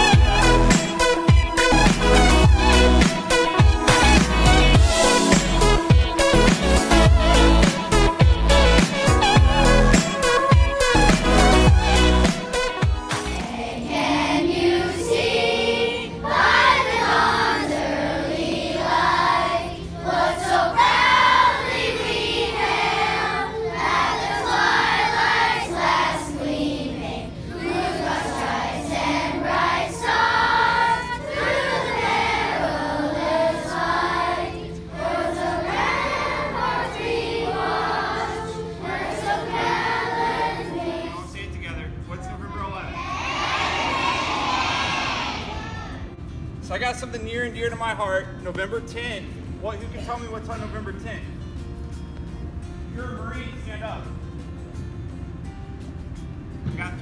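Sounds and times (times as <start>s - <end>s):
children singing in unison: 13.4s - 41.2s.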